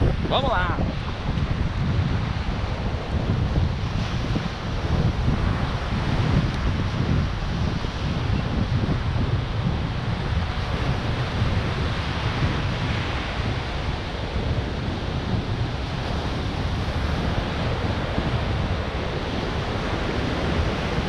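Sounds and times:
surf breaking on beach: 0.0s - 21.0s
wind rumbling on microphone: 0.0s - 21.0s.

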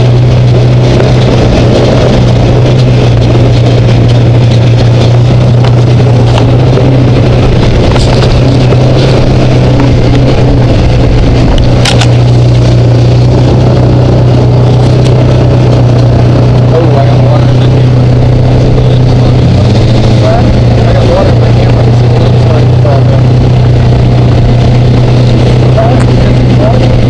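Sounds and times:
tyre and chassis rattle: 0.0s - 27.0s
vehicle engine droning: 0.0s - 27.0s
sharp click: 11.8s - 12.2s.

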